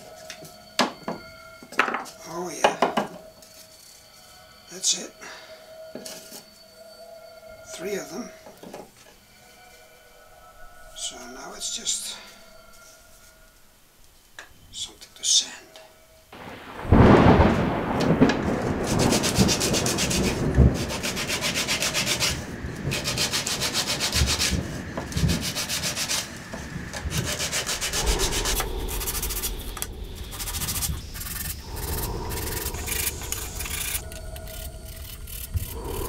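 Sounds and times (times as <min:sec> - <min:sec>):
wood rubbing on sandpaper: 0:18.8 - 0:26.4, 0:27.0 - 0:36.0.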